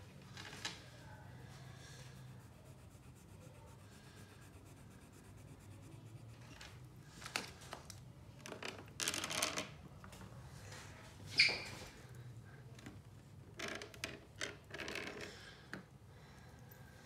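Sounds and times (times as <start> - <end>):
pencil scratching on paper: 2.0 - 6.9.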